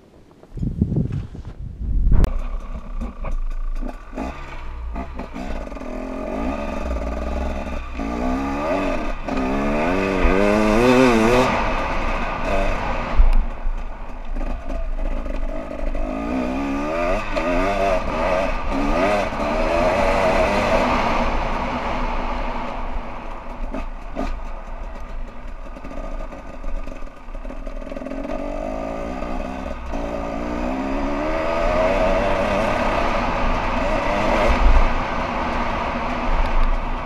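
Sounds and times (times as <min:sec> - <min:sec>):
wind buffeting microphone: 0:00.0 - 0:02.8
dirt bike engine revving: 0:02.3 - 0:37.0.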